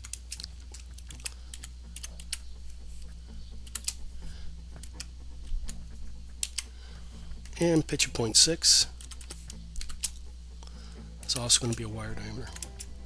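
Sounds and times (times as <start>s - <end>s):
keyboard typing: 0.0s - 2.4s, 3.6s - 4.0s, 9.0s - 10.2s
low hum: 0.0s - 13.0s.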